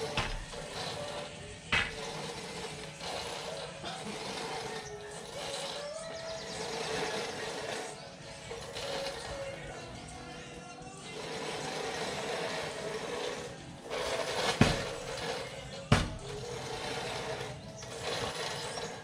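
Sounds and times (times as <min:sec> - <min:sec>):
push reel mower whirring: 0:00.0 - 0:19.0
sharp knocks: 0:01.7 - 0:02.0, 0:15.9 - 0:16.3.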